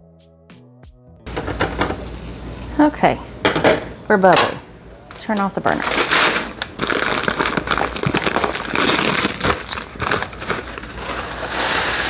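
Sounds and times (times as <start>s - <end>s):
plastic pouch crinkling: 5.1s - 12.0s.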